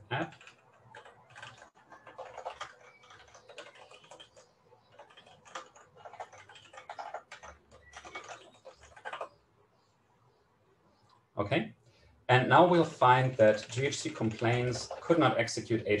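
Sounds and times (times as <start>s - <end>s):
keyboard typing: 0.0s - 9.4s, 12.8s - 15.8s.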